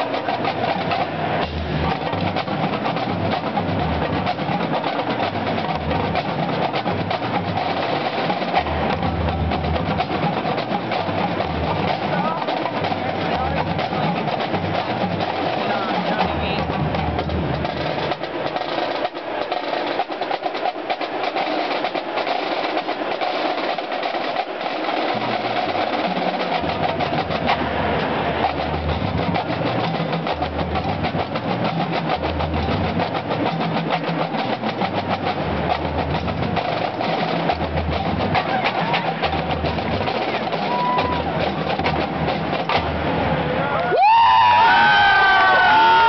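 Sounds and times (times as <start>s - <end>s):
deep bass drum beats: 0.0s - 21.0s, 28.4s - 43.0s
snare and tenor drums playing: 0.0s - 46.0s.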